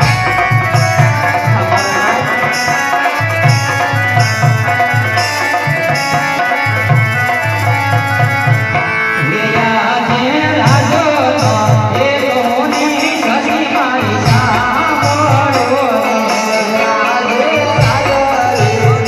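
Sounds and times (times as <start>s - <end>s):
man singing: 0.0s - 3.8s, 9.1s - 19.0s
hand drum beat: 0.0s - 19.0s.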